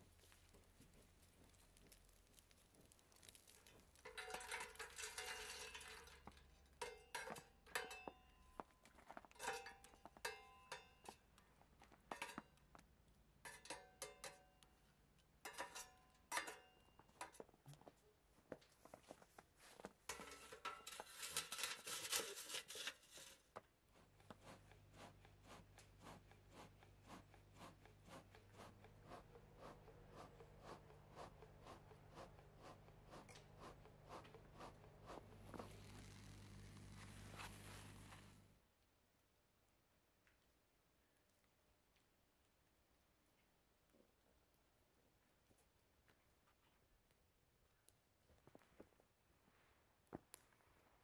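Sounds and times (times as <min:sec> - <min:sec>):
rustling noise: 0:18.8 - 0:38.5.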